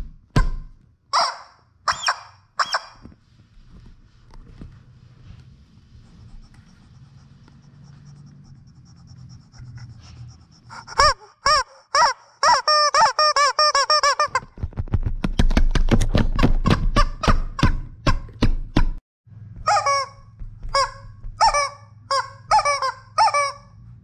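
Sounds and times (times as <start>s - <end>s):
rubber chicken squawks: 1.1s - 3.0s, 10.7s - 14.5s, 16.6s - 18.2s, 19.6s - 23.8s.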